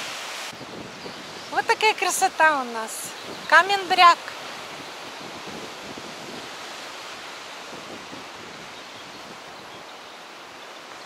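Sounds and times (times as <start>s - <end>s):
sea surf breaking on rocks: 0.0s - 8.8s
wind: 0.0s - 11.0s.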